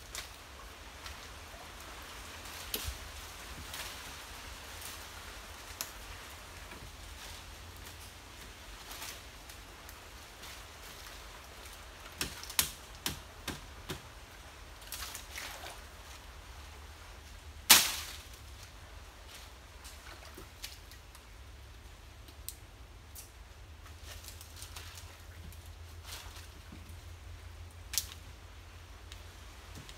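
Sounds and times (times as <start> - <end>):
dry palm fronds rustling: 0.0 - 29.9
sharp stalk cracks: 12.1 - 14.0, 17.6 - 18.4, 27.9 - 28.2.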